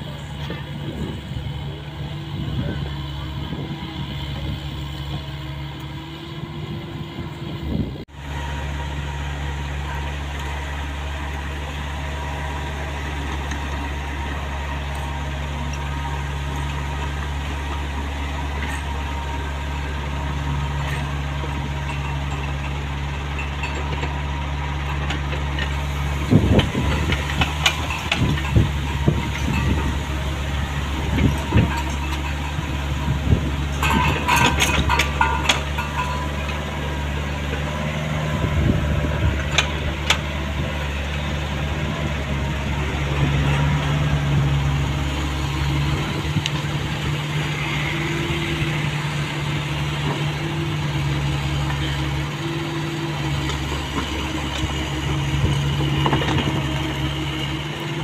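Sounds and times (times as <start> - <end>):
excavator diesel engine droning: 0.0 - 58.0
metallic clanks and knocks: 20.8 - 38.0.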